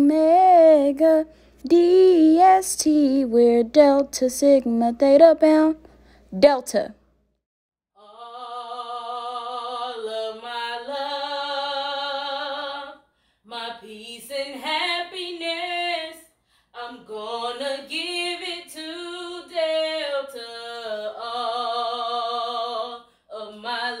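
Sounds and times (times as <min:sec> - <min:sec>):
woman singing unaccompanied: 0:00.0 - 0:05.9, 0:08.0 - 0:24.0.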